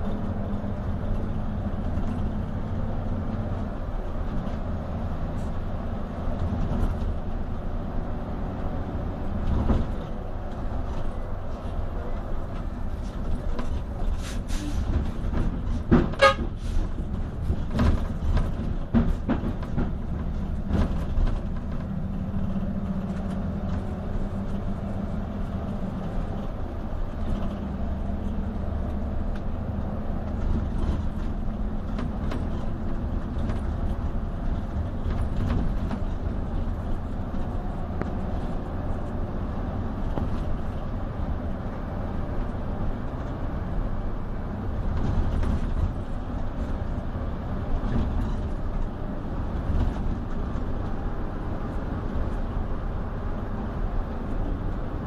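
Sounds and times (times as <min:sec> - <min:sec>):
bus engine and road rumble: 0:00.0 - 0:55.0
sharp knocks or rattles: 0:15.0 - 0:22.0.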